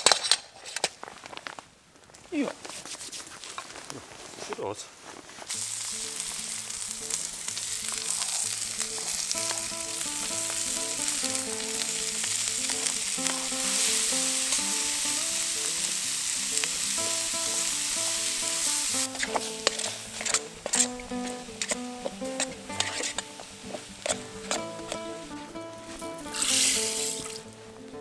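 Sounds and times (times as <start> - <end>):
vegetables sizzling in hot oil: 5.5 - 25.4, 26.2 - 27.5
quiet background music: 5.5 - 28.0.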